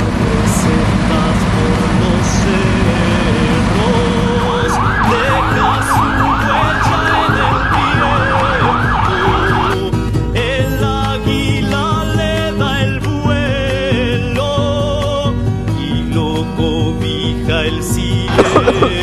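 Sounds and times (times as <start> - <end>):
background music: 0.0 - 19.0
siren yelping: 4.4 - 9.8, 18.3 - 19.0.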